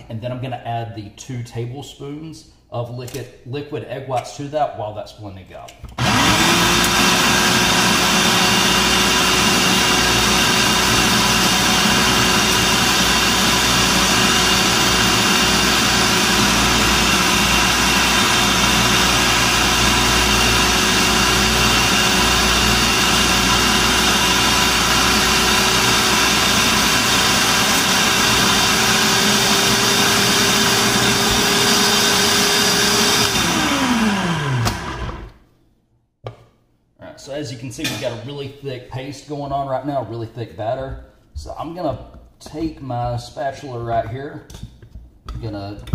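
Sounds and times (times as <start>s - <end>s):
food processor motor whine: 6.0s - 35.4s.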